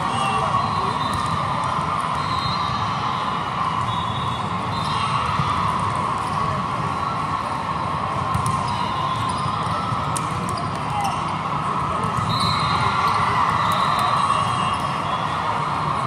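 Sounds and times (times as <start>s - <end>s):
din of players and spectators: 0.0s - 16.0s
volleyball strikes and thumps: 8.3s - 8.7s
sneaker squeaks: 8.4s - 9.6s.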